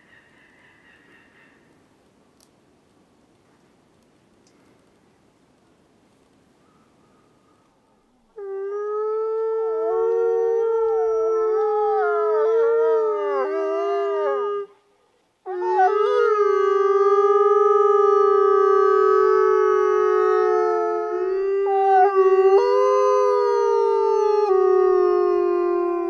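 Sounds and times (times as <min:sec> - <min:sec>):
wolves howling: 0:08.4 - 0:14.7, 0:15.5 - 0:26.0.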